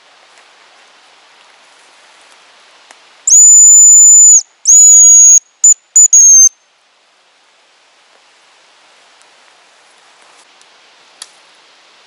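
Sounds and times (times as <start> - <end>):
high decoy whistle: 3.3 - 6.6.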